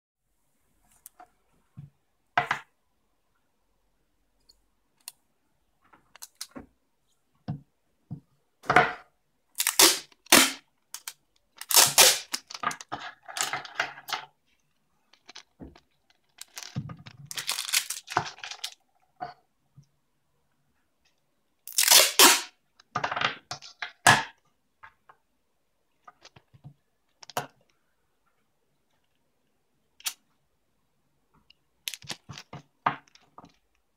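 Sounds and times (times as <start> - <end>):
tape ripping off roll: 9.6 - 12.6, 21.7 - 22.5.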